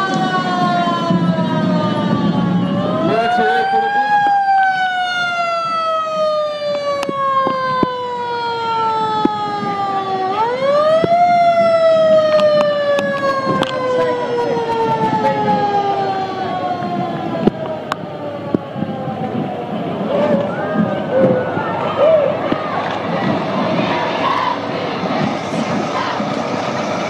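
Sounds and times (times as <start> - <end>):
siren winding up and falling: 0.0 - 19.2.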